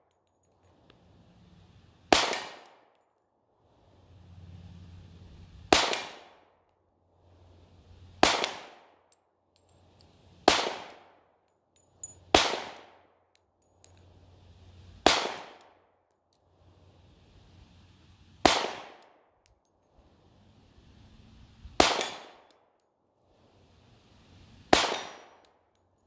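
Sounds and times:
pistol shots with ringing tail: 2.1s - 2.6s, 5.7s - 6.2s, 10.5s - 10.9s, 12.4s - 12.8s, 15.0s - 15.5s, 18.4s - 18.9s, 21.8s - 22.3s, 24.7s - 25.3s.

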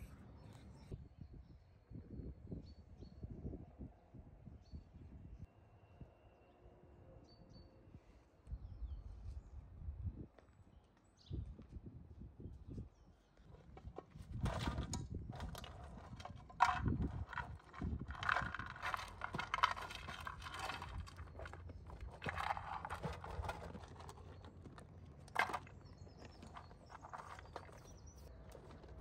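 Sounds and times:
animals moving knocks and rustling: 13.5s - 29.0s.

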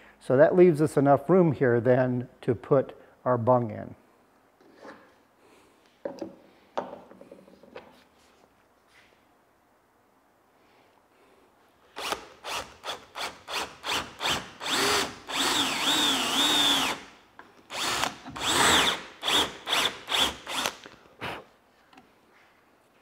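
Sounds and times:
cordless drill boring into wood: 12.0s - 17.1s, 17.7s - 20.8s.

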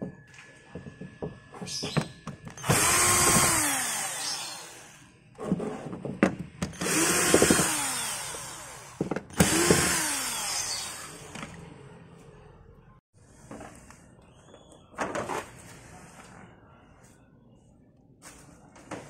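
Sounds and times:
cordless drill running: 2.6s - 5.1s, 6.8s - 11.3s.

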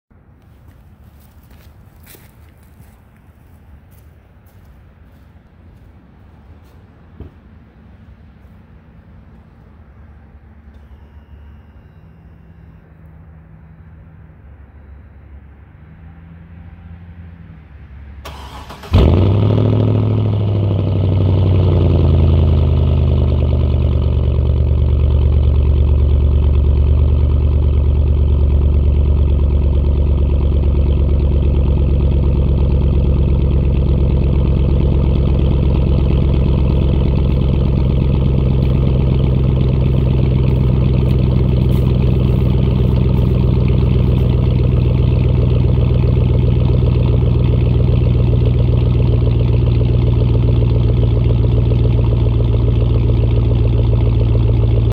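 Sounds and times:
truck engine starting and idling: 15.6s - 54.9s.

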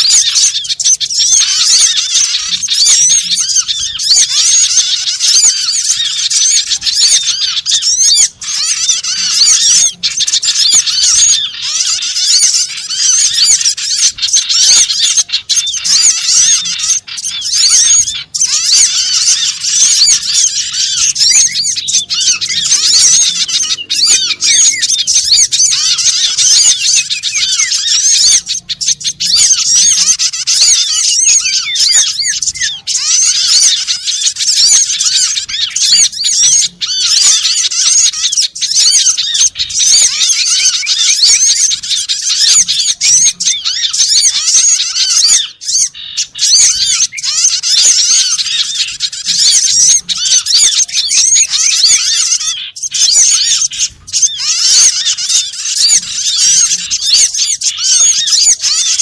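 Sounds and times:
sunbirds chirping and whistling: 0.0s - 59.0s.

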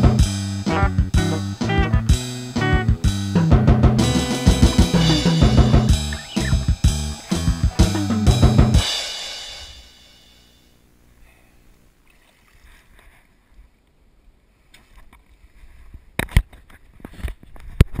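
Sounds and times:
song with drums: 0.0s - 10.4s.

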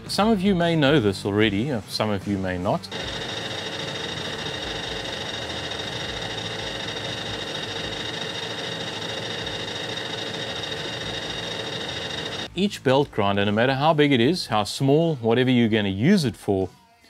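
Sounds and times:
metal lathe cutting with whine: 2.9s - 12.5s.

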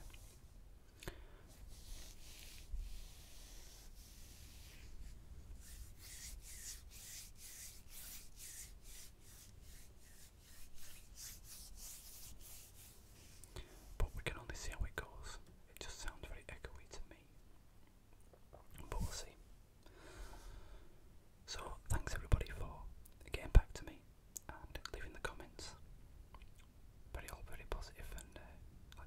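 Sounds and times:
close rubbing and scraping: 1.5s - 14.2s.

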